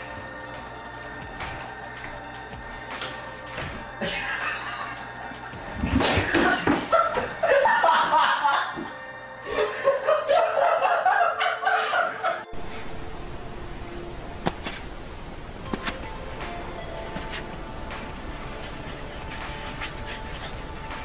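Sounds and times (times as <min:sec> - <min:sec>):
person laughing: 0:04.0 - 0:12.5.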